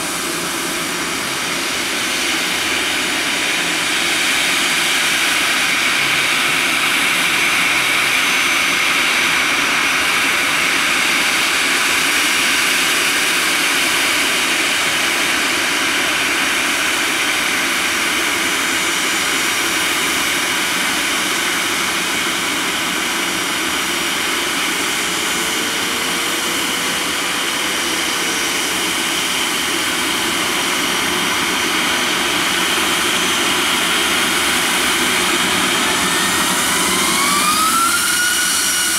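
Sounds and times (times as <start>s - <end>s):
jet engines running: 0.0s - 38.9s.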